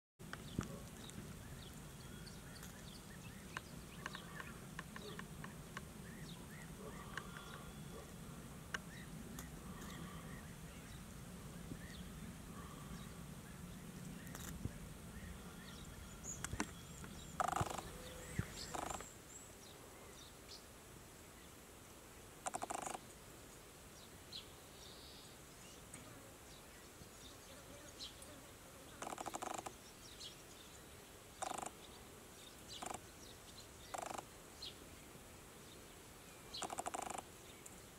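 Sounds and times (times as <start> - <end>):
bird chirps and clicks: 0.3 - 5.9, 6.6 - 7.7, 14.1 - 14.6, 16.3 - 17.9, 18.6 - 19.1, 22.4 - 23.1, 29.0 - 29.8, 31.4 - 31.8, 32.7 - 33.0, 33.8 - 34.3, 36.5 - 37.8
harsh rasping bird calls: 2.0 - 8.2, 15.2 - 19.1, 28.9 - 29.8, 31.4 - 31.8, 32.7 - 33.1, 33.8 - 34.3, 36.5 - 37.3.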